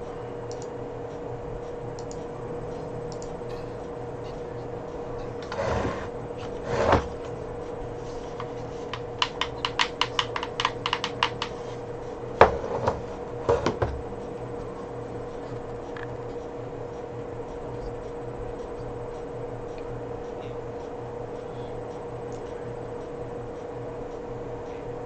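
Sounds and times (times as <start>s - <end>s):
steady hum: 0.0s - 25.0s
keyboard keys clicking: 8.4s - 11.6s.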